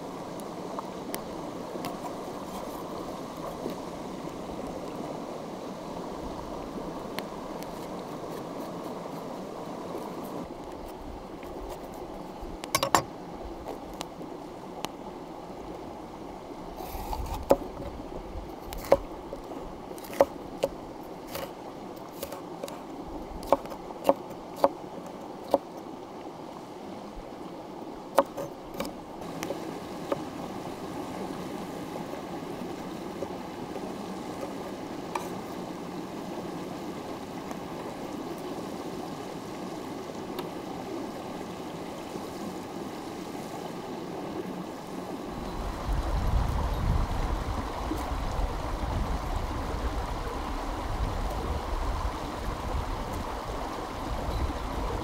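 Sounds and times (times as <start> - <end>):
stream running over rocks: 0.0 - 55.0
sharp clicks and knocks: 12.6 - 13.1.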